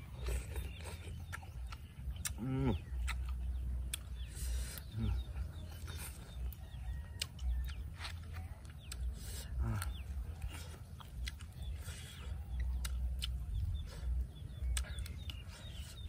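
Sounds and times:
low steady rumble: 0:00.0 - 0:16.0
man chewing with wet mouth clicks: 0:00.0 - 0:16.0
man humming mmm: 0:02.2 - 0:02.9, 0:04.9 - 0:05.4, 0:09.6 - 0:10.1.

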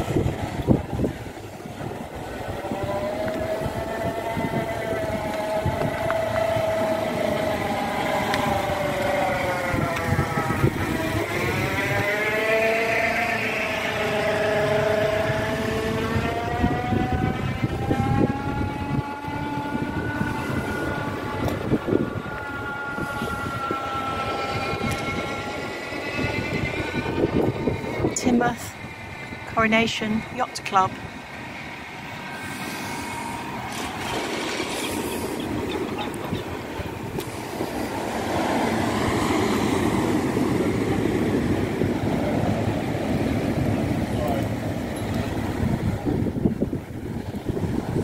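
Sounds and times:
motor engine revving: 0:09.4 - 0:28.2.

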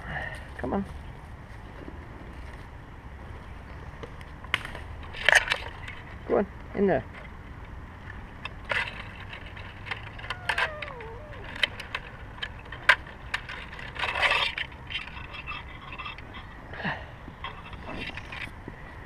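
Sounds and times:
branches rustling: 0:08.2 - 0:16.0.

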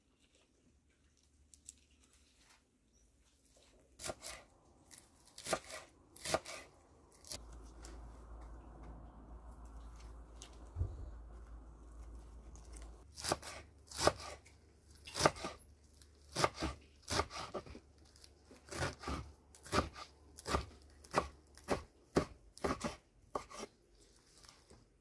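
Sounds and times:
knife chopping lettuce on wood: 0:04.0 - 0:04.4, 0:05.3 - 0:07.4, 0:13.1 - 0:15.6, 0:16.2 - 0:17.8, 0:18.6 - 0:23.7.

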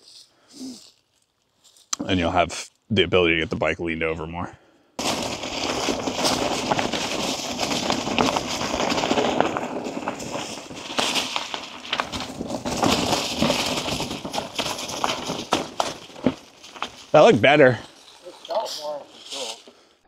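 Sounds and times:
bike tyres rolling over dirt: 0:05.0 - 0:19.9.

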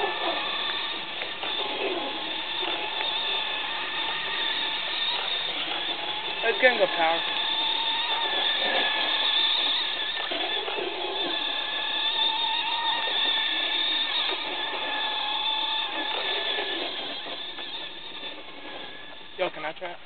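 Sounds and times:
remote-control truck motor whining: 0:00.0 - 0:20.0.

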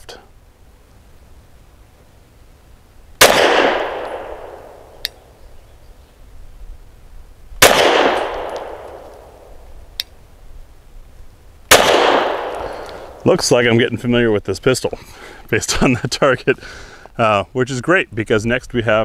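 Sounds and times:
pistol shots echoing: 0:03.2 - 0:05.0, 0:07.6 - 0:09.6, 0:11.7 - 0:13.2.

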